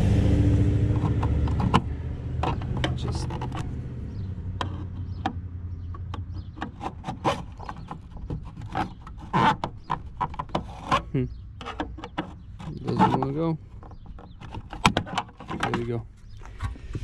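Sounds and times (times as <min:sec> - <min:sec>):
screwdriver clicking and scraping plastic: 0:00.9 - 0:03.7, 0:06.0 - 0:11.0, 0:11.6 - 0:16.8.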